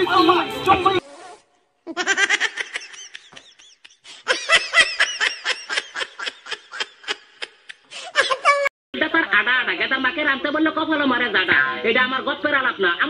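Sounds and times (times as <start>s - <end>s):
high-pitched laughter: 1.9s - 8.7s.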